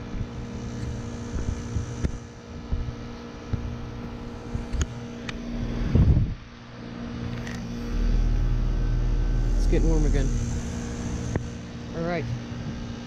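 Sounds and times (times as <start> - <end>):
heat pump compressor and fan hum: 0.0 - 13.0
low rumble on microphone: 4.5 - 11.9.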